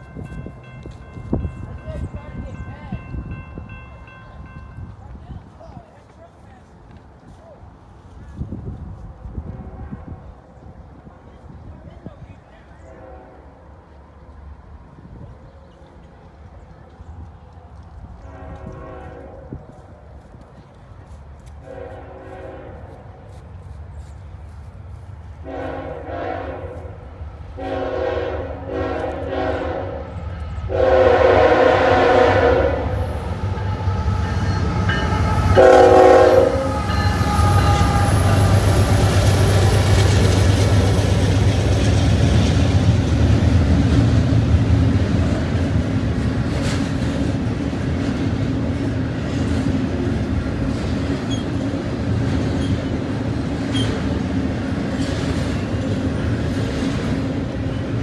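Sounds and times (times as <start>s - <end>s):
locomotive engine rumble: 0.0s - 58.0s
train horn blasts: 9.4s - 10.4s, 12.8s - 13.7s, 18.2s - 19.8s, 21.6s - 23.2s, 25.4s - 39.7s
train wheel clatter: 37.1s - 58.0s.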